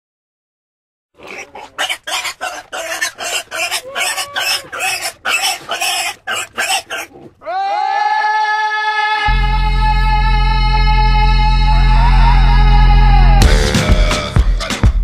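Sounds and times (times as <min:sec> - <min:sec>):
harsh animal calls: 0:01.2 - 0:09.4
music: 0:09.3 - 0:15.0.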